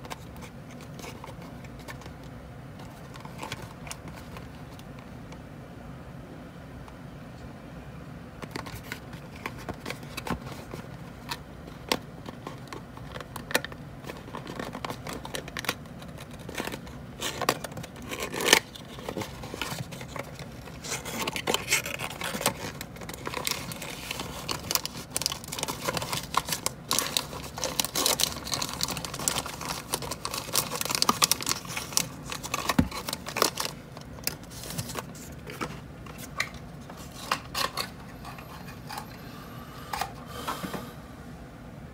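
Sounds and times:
plastic bag crinkling: 12.3 - 37.9
cardboard scraping and tearing: 17.2 - 35.3.

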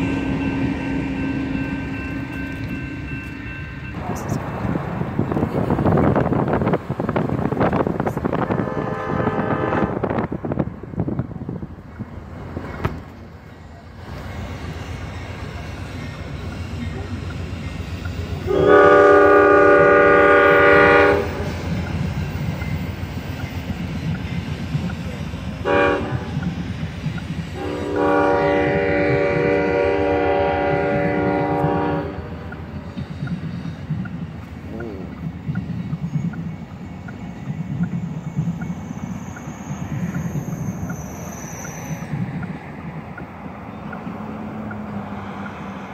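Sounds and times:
train rumble and clatter: 0.0 - 45.9
train air horn: 8.5 - 10.2, 18.5 - 21.5, 25.6 - 26.3, 27.6 - 32.4.

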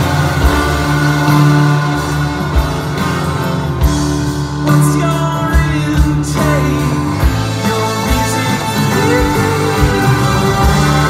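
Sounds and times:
saxophone: 0.0 - 4.1, 7.3 - 11.0
violins: 0.0 - 4.3, 7.2 - 11.0
trumpet: 0.0 - 4.8, 7.2 - 11.0
acoustic guitar: 0.0 - 11.0
man singing: 4.6 - 11.0.

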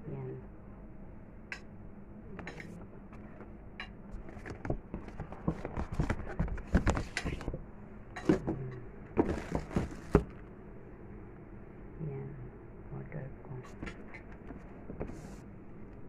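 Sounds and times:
knocks and taps on cardboard box: 4.4 - 7.5
packaging rustling: 9.2 - 10.4.

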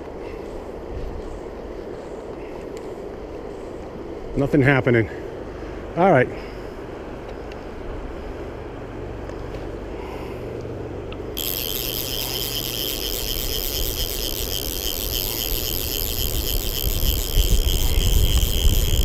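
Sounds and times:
wind rumbling on microphone: 11.4 - 19.0.

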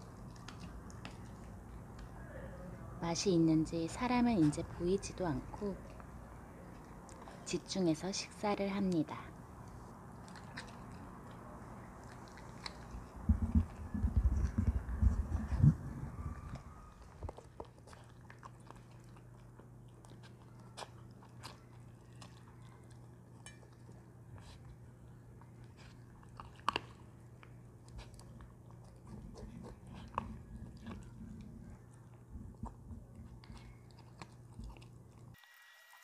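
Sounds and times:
animal chewing and lapping food: 0.0 - 2.2, 9.6 - 35.4.

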